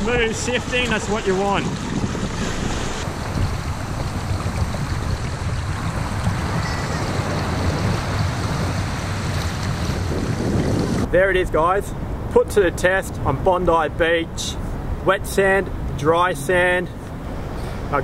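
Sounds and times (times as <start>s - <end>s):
surf splashing around legs: 0.0s - 11.1s
wind rumble on microphone: 0.0s - 11.2s.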